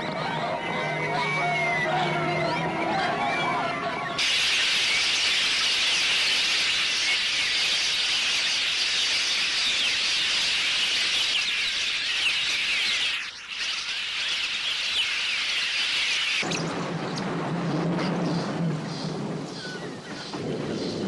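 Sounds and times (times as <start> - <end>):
flock of birds chirping: 0.0 - 21.0.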